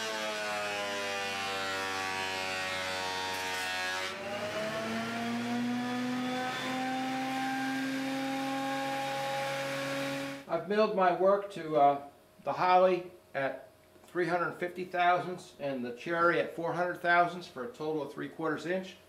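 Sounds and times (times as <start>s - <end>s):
thickness planer milling board: 0.0s - 10.5s.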